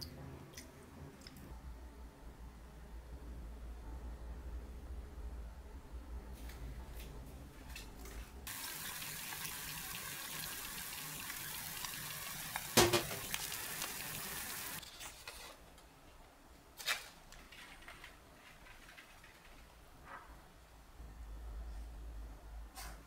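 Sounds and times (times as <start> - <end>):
eggs sizzling in a pan: 8.5 - 14.8.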